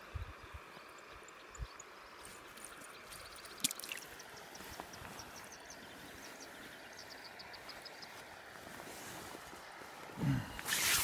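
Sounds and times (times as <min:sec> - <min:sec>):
creek water running: 0:00.0 - 0:11.0.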